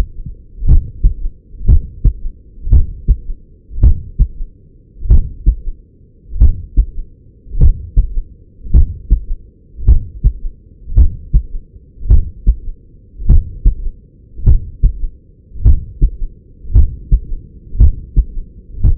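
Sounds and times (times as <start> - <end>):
heartbeat through a stethoscope: 0.0 - 5.8, 6.4 - 7.0, 7.6 - 18.9.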